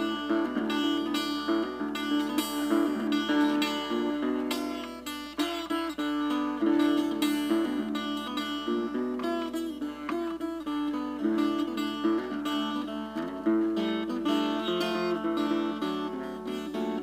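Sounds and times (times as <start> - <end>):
plucked acoustic guitar: 0.0 - 17.0.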